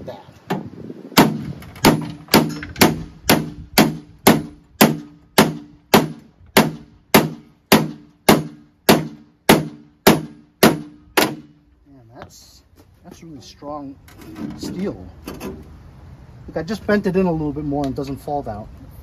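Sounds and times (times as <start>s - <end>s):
hammer clanging on steel: 1.2s - 11.5s.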